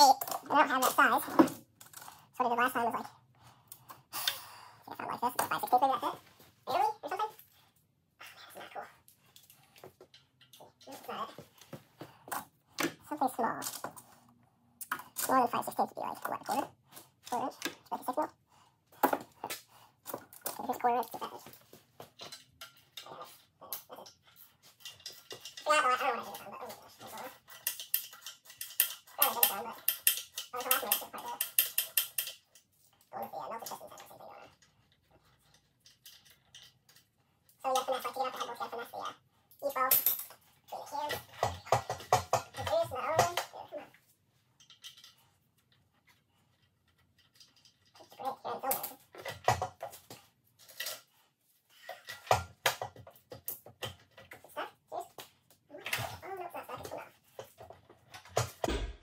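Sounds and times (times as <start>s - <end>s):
person talking indistinctly: 4.8s - 7.4s, 13.0s - 13.8s, 14.8s - 18.4s, 20.5s - 21.6s
metallic knocks and clicks: 58.2s - 59.0s.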